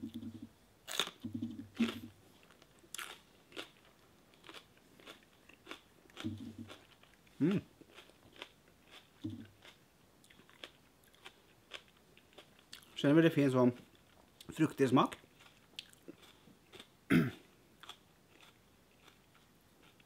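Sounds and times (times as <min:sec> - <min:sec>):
crisp crunches of biting pepper: 0:00.9 - 0:02.1
wet chewing clicks: 0:04.4 - 0:07.3.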